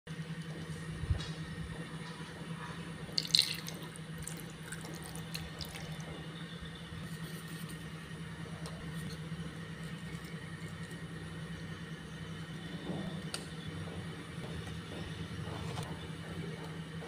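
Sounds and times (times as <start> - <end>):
steady low hum: 0.1 - 17.0
liquid splashing and dripping: 3.1 - 6.1.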